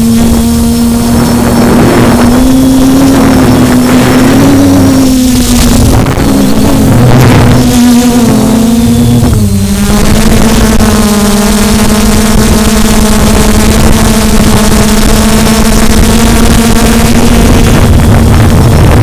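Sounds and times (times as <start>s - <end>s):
drone motors and propellers: 0.0s - 19.0s
rush of air: 15.6s - 19.0s.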